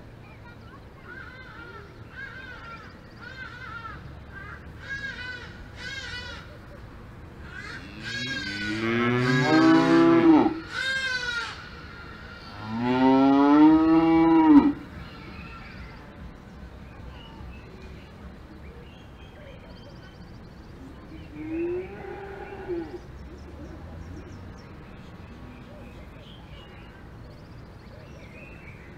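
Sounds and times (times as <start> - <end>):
cows mooing: 7.8 - 10.7, 12.5 - 14.8.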